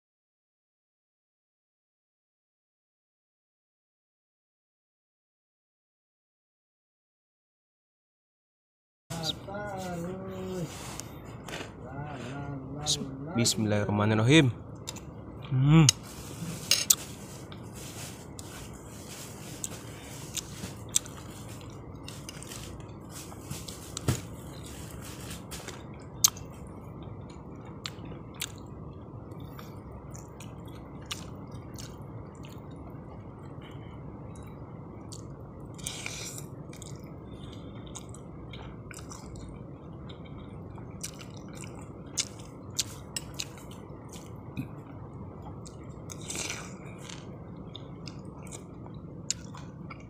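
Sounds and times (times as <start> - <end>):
low background hum: 9.1 - 50.0
person chewing and slurping noodles: 10.5 - 12.4, 14.8 - 28.7, 29.4 - 50.0.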